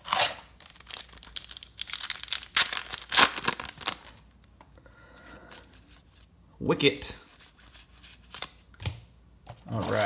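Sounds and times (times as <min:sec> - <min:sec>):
wrapper crinkling and tearing: 0:00.0 - 0:04.3.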